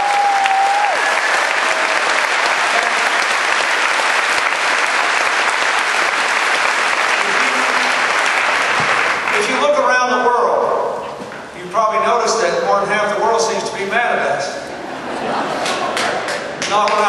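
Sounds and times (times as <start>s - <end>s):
large crowd applauding: 0.0s - 9.6s, 15.6s - 17.0s.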